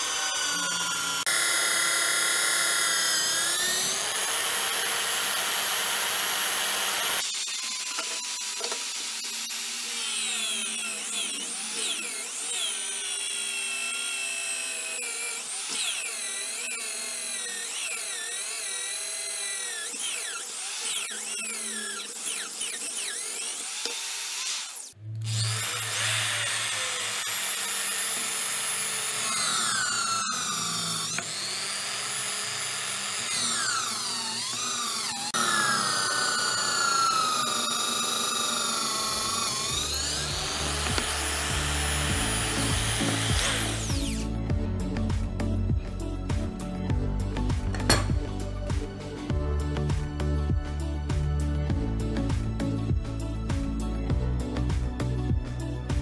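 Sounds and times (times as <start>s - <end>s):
drill drilling into wood: 0.0s - 44.4s
drill motor whining into metal: 0.0s - 44.4s.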